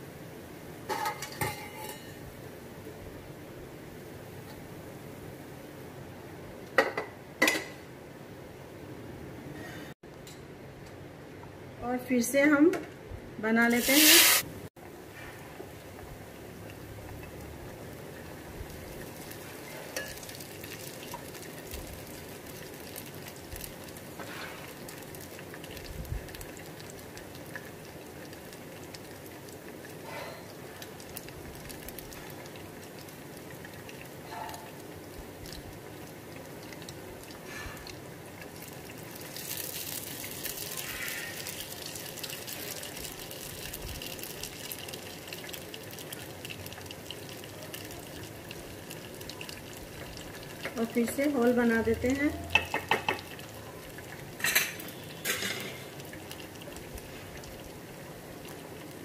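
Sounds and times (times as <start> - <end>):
batter sizzling in hot fat: 13.6 - 14.6, 15.2 - 59.0
popping in frying batter: 16.0 - 59.0.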